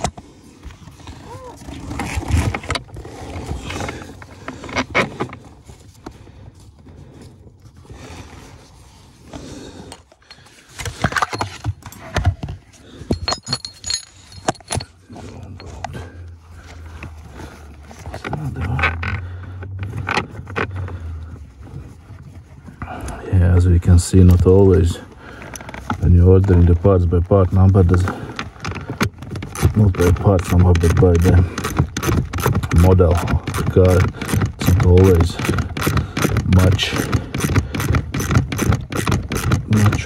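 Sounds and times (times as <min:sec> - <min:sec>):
metal and plastic parts clicking: 0:27.8 - 0:40.0.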